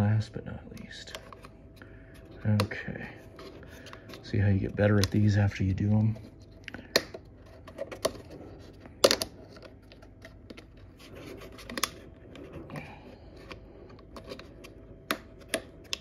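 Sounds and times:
plastic caps clicking and snapping: 6.6 - 7.2, 8.9 - 9.7.

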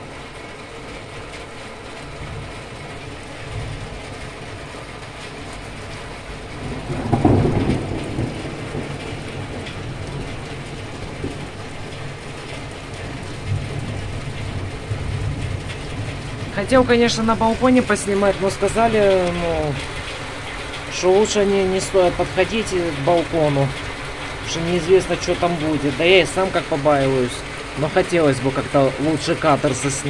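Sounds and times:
heavy rain: 0.0 - 30.0
thunder rumbling: 1.0 - 30.0.

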